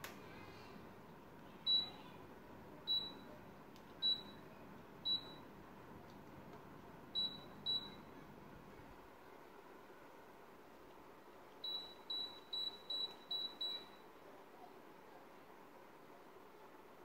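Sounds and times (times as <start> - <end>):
air conditioner low hiss: 0.0 - 17.0
air conditioner short beeps: 1.6 - 2.2, 2.8 - 3.4, 4.0 - 5.6, 7.1 - 8.1, 11.6 - 14.1.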